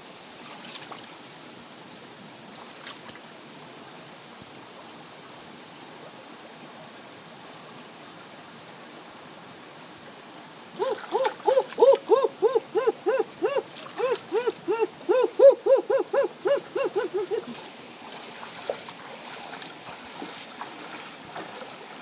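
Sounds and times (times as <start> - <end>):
frog calling: 10.8 - 17.5.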